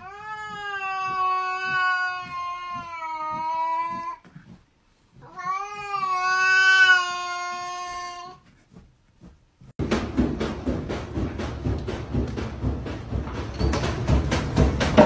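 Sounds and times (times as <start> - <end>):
cat yowling: 0.0 - 4.2, 5.2 - 8.4.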